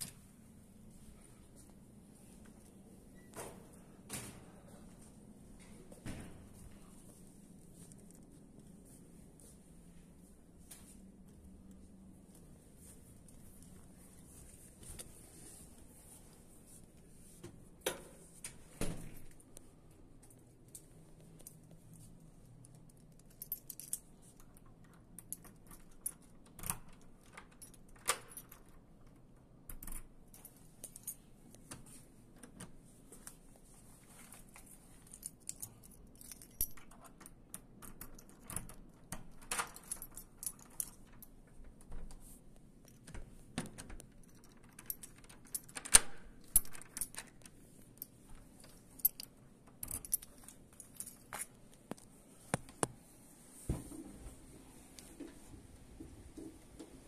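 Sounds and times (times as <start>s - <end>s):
keys jangling: 20.2s - 31.3s, 34.3s - 41.9s, 42.8s - 52.0s
key fitting into door lock: 43.7s - 47.5s.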